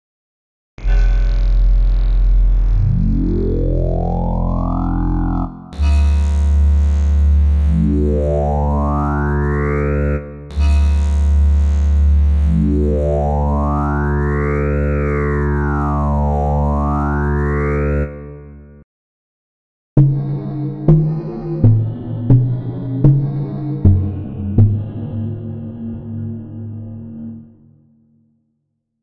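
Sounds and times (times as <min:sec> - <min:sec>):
synthesizer sawtooth notes sweeping up: 0:01.3 - 0:18.8, 0:20.0 - 0:28.1.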